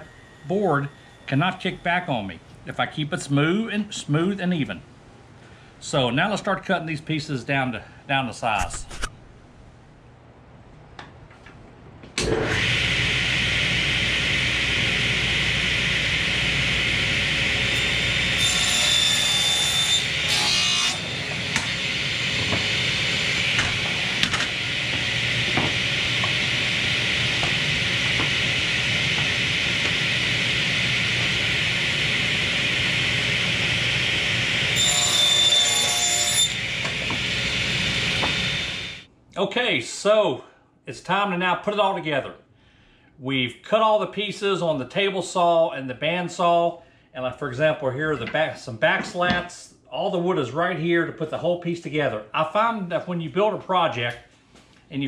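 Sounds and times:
table saw running: 0.0s - 1.8s, 12.2s - 39.1s
saw blade whine cutting wood: 0.0s - 2.3s, 12.2s - 39.1s.

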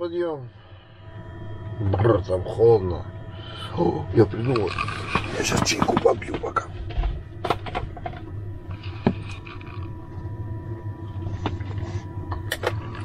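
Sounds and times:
steady low hum: 0.0s - 13.0s
thermos clicks and knocks: 4.6s - 9.9s.

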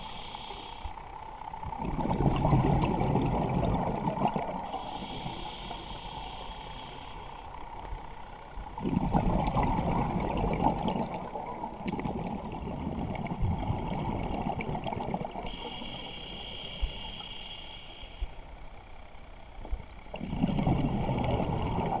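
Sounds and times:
regulator inhale hiss: 0.0s - 1.2s, 4.6s - 7.8s, 15.4s - 18.6s
exhaled bubbles underwater: 1.6s - 5.2s, 8.7s - 15.6s, 20.1s - 22.0s.

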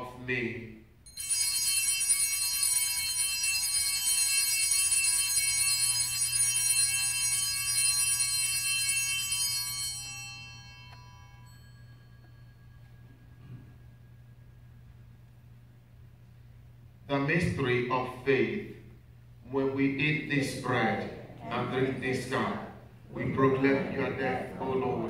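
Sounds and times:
small bright bells ringing: 1.0s - 14.8s.

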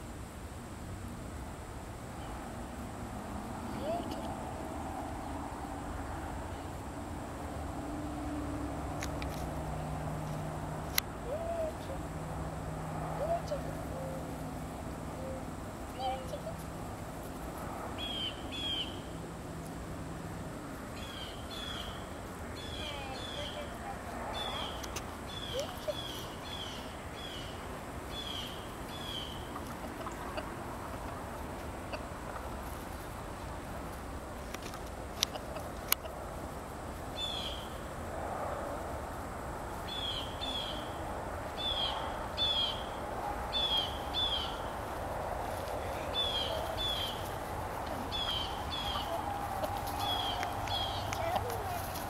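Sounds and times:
chickens murmuring: 11.2s - 18.8s, 20.7s - 37.0s, 41.7s - 52.0s.

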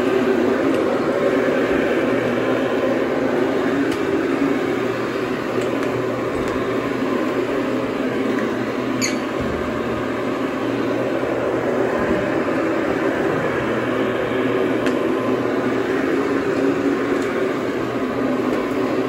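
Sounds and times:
carpet cleaning machine motor: 0.0s - 19.0s
high squeak: 9.0s - 9.3s.

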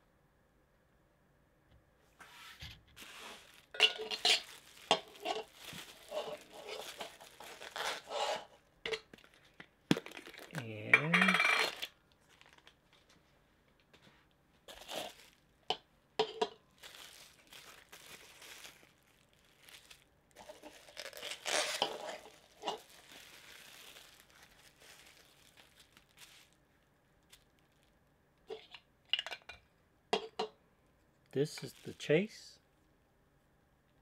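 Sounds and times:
bubble wrap crinkling: 2.2s - 10.7s, 11.7s - 13.9s, 14.6s - 15.7s, 16.7s - 28.1s, 31.5s - 32.3s.

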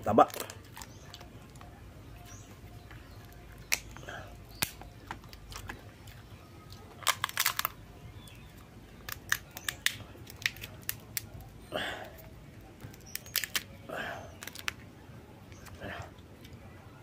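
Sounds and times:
crab shell cracking: 0.2s - 1.7s, 3.2s - 8.4s, 9.0s - 11.4s, 12.2s - 14.8s.

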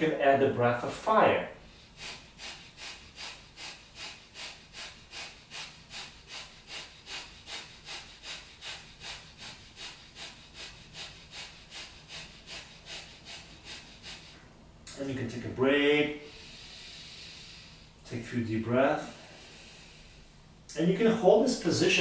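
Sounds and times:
rapid forceful nose breathing: 1.6s - 14.6s, 16.2s - 18.0s, 19.1s - 20.6s.

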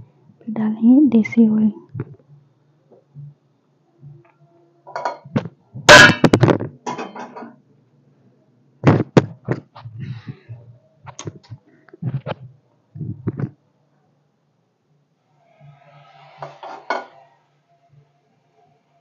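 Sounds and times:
kitchen items knocking and clattering: 4.9s - 7.6s, 16.5s - 17.1s.

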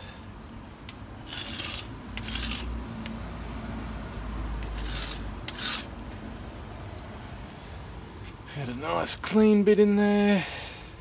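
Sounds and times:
rasping rubbing noises: 1.2s - 2.7s, 4.6s - 5.9s.

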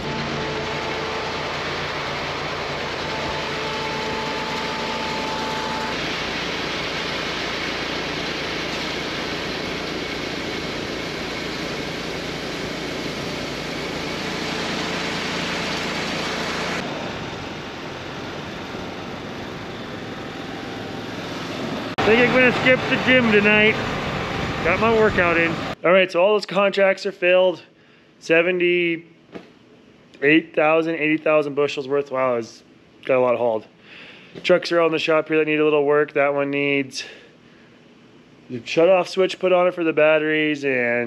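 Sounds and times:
grain auger running: 0.0s - 25.8s
truck engines idling: 0.0s - 25.8s.

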